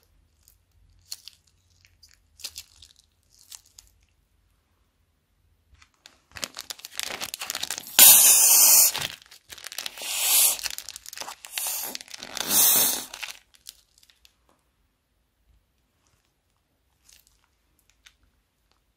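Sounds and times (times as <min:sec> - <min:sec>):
plastic bag crinkling: 0:00.3 - 0:04.1, 0:05.8 - 0:14.4
spluttering foam squirts: 0:09.9 - 0:13.2.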